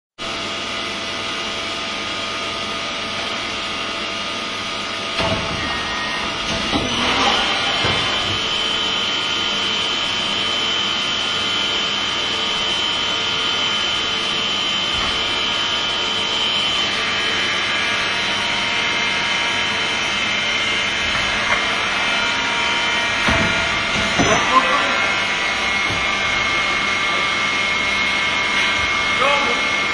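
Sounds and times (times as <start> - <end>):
metalworking machinery drone: 0.2 - 29.9
machinery clunk: 5.2 - 8.9, 23.0 - 24.8.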